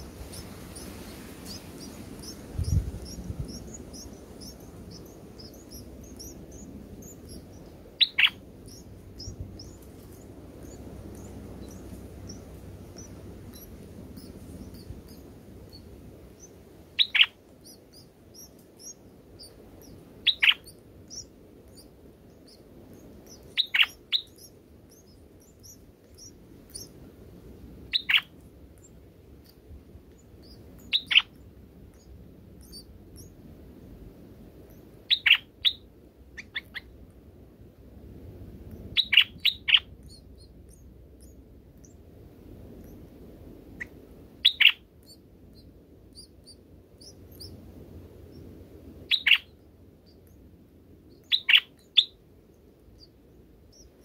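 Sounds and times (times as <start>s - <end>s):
sharp downward-sweeping bird chirps: 0.0s - 26.9s, 30.4s - 33.3s, 38.9s - 42.0s, 43.8s - 47.5s, 49.1s - 50.3s, 51.1s - 52.2s
faint high twittering: 0.0s - 27.0s, 27.8s - 33.4s, 38.7s - 42.0s, 43.7s - 54.0s.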